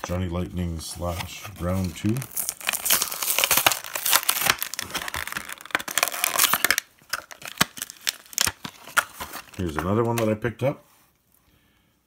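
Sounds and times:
cardboard tearing: 1.5 - 9.7
plastic blister pack crackling: 1.6 - 10.4.

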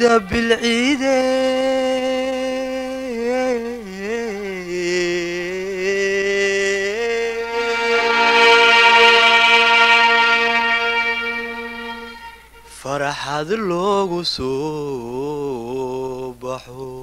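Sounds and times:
melodic music with ornamented notes: 7.5 - 12.6.

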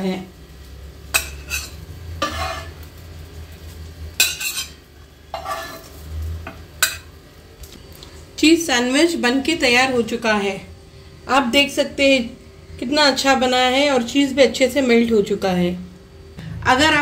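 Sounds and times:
low steady hum: 0.0 - 17.0
metal spatula scraping ceramic plate: 1.2 - 2.8, 4.2 - 6.0.

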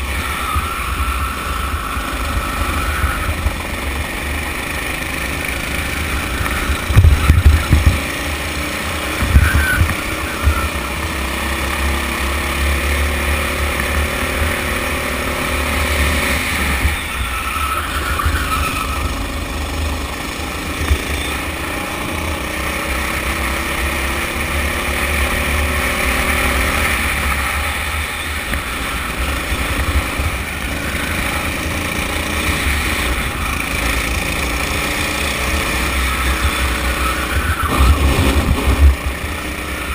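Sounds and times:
kart engine under throttle: 0.0 - 39.9
wind rumble on microphone: 6.8 - 8.2, 9.2 - 10.7, 37.4 - 39.9.

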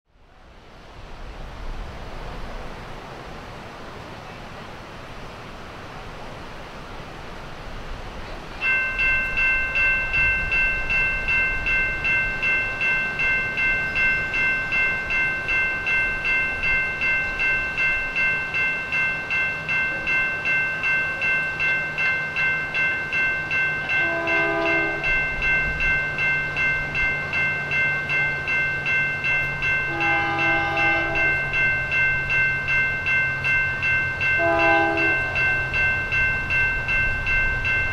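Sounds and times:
locomotive drone: 0.2 - 37.9
railroad crossing bell ringing: 8.1 - 37.9
train horn blasts: 23.9 - 25.3, 29.9 - 31.5, 34.4 - 35.6.

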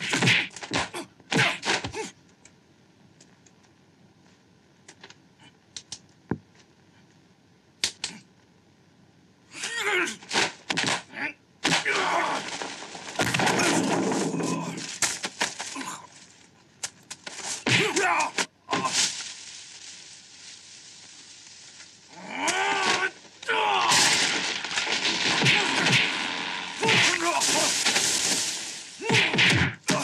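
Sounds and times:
punch hits: 25.2 - 26.2, 29.0 - 30.0.

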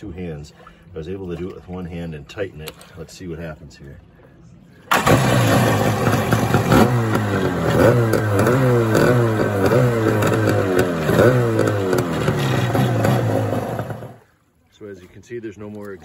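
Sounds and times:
jet ski engine revving: 4.9 - 14.3.

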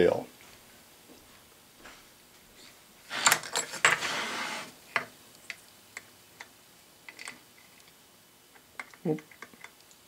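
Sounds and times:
scraping shuffle on wooden bench: 3.1 - 4.8.

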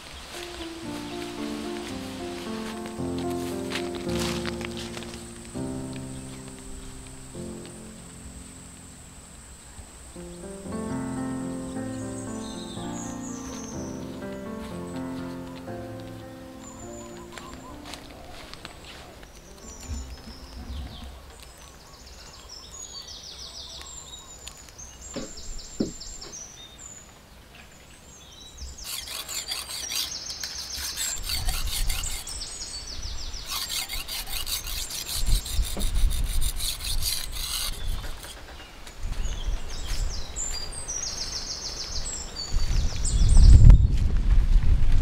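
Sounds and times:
birds chirping: 0.0 - 44.0
knife scraping on whetstone: 28.8 - 32.4, 33.5 - 38.4.

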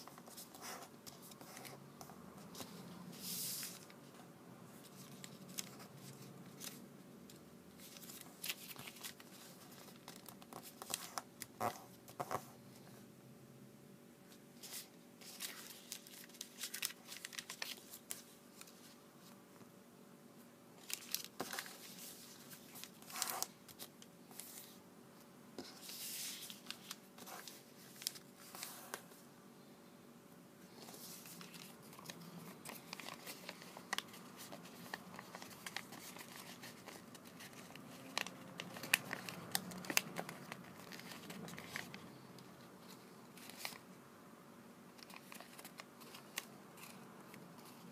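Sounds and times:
paper being folded and creased: 4.8 - 6.8, 7.8 - 12.4, 14.6 - 19.0, 20.8 - 24.8, 25.6 - 29.0, 30.8 - 42.1, 42.8 - 43.8, 45.0 - 47.9.

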